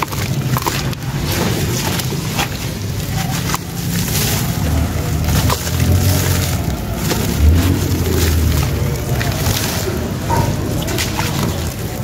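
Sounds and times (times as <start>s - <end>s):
hands squeezing wet gritty mud: 0.0s - 12.0s
mud splashing into water: 0.0s - 12.0s.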